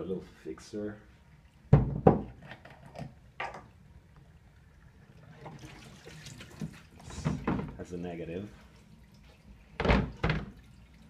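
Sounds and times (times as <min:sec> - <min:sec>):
tap water splashing in a sink: 0:05.2 - 0:08.0, 0:08.6 - 0:11.0.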